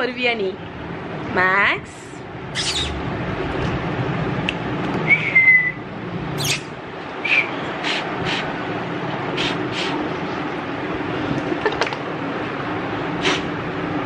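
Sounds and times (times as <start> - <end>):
dog sniffing: 2.6 - 3.0, 7.8 - 8.5, 9.4 - 10.0, 13.2 - 13.5
dog whining: 2.6 - 3.0, 6.4 - 6.7.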